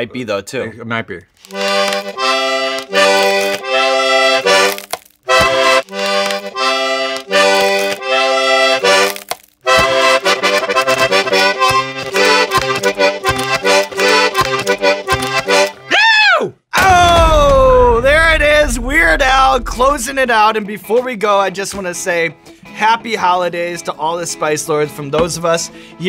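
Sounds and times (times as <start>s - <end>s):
toy accordion playing: 1.4s - 15.9s.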